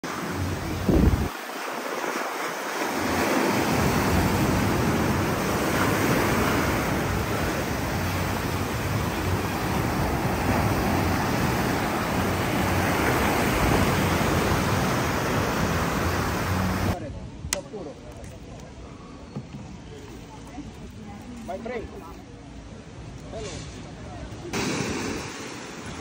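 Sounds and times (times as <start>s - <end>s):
sea surf breaking: 0.0s - 17.0s, 24.5s - 26.0s
wind buffeting microphone: 0.4s - 1.4s.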